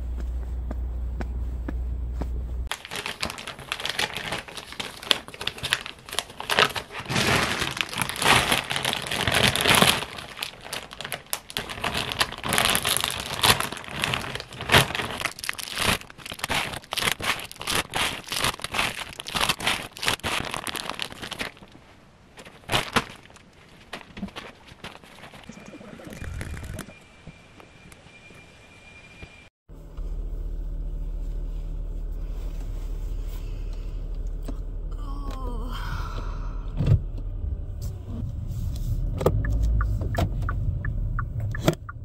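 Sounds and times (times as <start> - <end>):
low steady rumble: 0.0 - 2.7, 29.7 - 42.0
plastic bag crinkling: 2.7 - 26.9.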